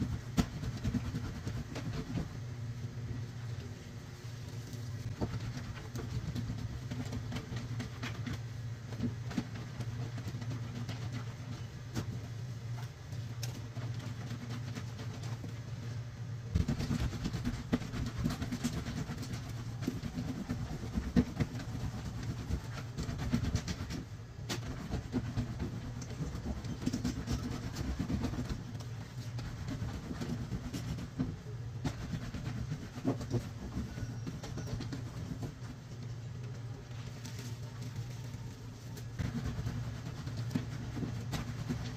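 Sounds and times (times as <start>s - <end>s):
laundry scrubbed on washboard: 0.0s - 2.4s, 16.5s - 35.9s, 37.0s - 41.9s.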